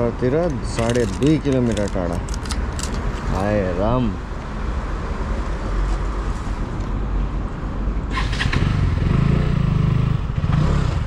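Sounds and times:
rattle of clicks: 0:00.4 - 0:03.3.

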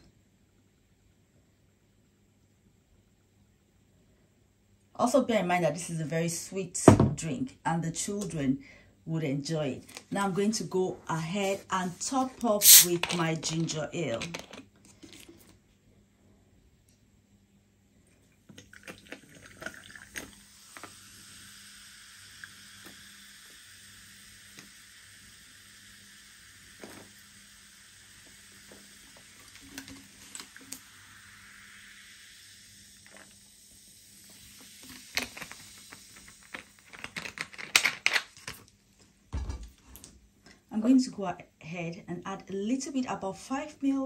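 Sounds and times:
fizzy drink pouring into glass: 0:12.6 - 0:13.0, 0:18.5 - 0:37.0.

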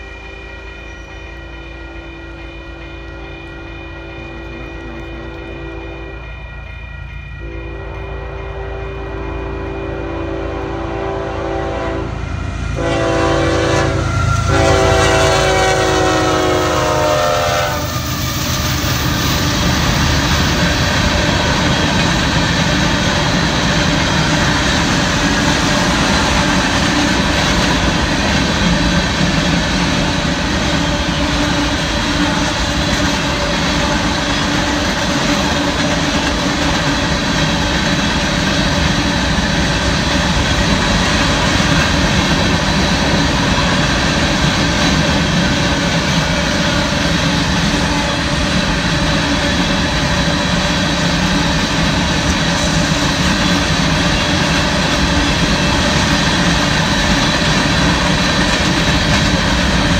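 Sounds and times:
locomotive horn blasts: 0:00.0 - 0:06.4, 0:07.4 - 0:18.9.

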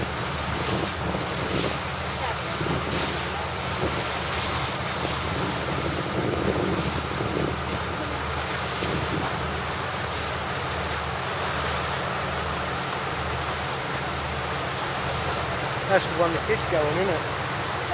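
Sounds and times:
wind buffeting microphone: 0:00.0 - 0:10.6
boat engine drone: 0:00.0 - 0:17.9
water rushing past hull: 0:00.0 - 0:17.9.

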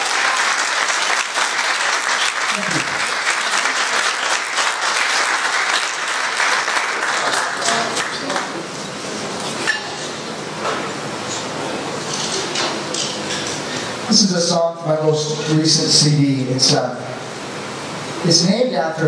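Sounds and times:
audience applauding and cheering: 0:00.0 - 0:08.6.

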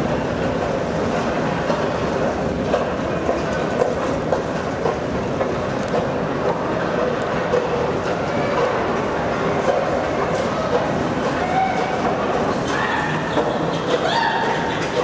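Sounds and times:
clicks from moving steps: 0:02.6 - 0:08.7.

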